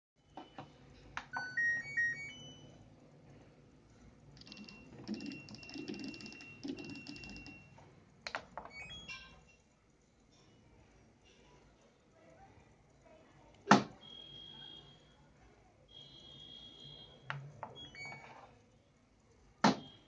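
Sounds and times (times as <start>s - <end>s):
held beep tone: 4.4s - 7.7s, 14.0s - 15.1s, 15.9s - 17.2s
short beeps: 15.9s - 17.2s.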